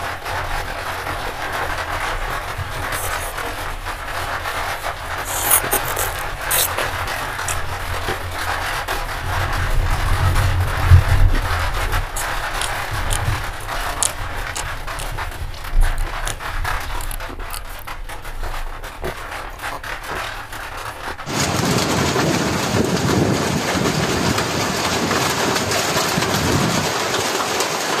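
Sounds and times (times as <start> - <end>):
steady rushing noise: 0.0 - 26.9
wet mouth clicks and smacks: 1.5 - 10.3, 11.3 - 21.3.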